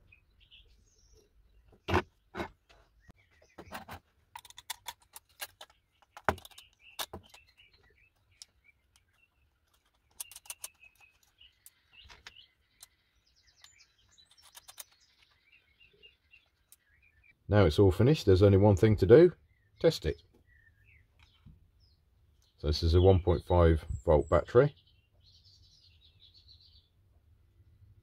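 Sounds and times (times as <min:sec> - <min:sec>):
birds chirping: 0:00.0 - 0:27.2
metal parts clicking and tapping: 0:03.7 - 0:13.0, 0:13.6 - 0:15.4.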